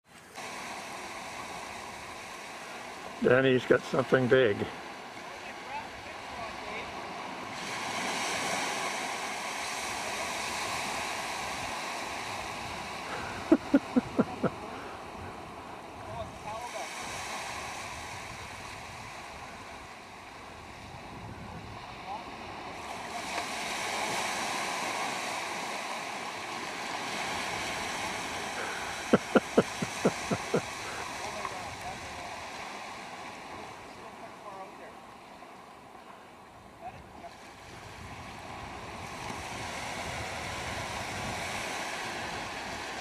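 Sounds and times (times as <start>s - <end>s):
wind: 0.0s - 43.0s
waves washing onto rocks: 0.1s - 43.0s.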